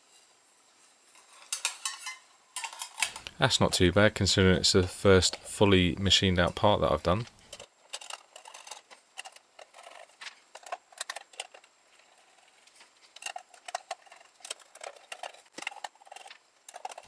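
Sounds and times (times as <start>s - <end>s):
light metallic clicks and scrapes: 1.1s - 3.4s, 7.3s - 17.0s.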